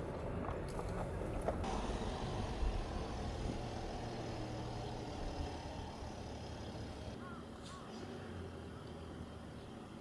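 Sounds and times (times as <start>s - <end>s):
low engine drone: 1.6s - 7.3s.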